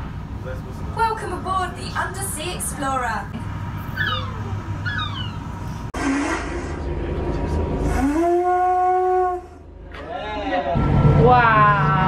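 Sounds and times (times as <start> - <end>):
conch shell horn note: 7.9 - 9.7.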